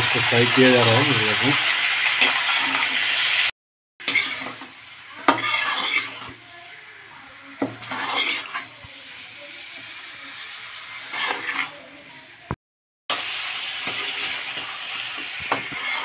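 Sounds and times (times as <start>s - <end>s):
food sizzling in a pan: 0.0s - 16.0s
metal spatula scraping a pan: 2.1s - 3.2s, 4.0s - 6.4s, 7.6s - 11.9s, 13.8s - 16.0s.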